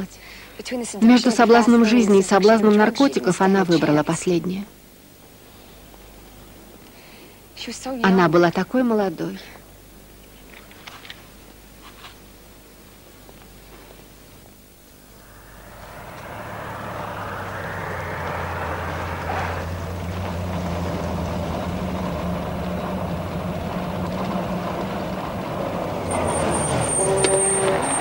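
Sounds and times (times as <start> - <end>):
high steady squeal: 15.0 - 21.4
van engine running: 15.2 - 28.0.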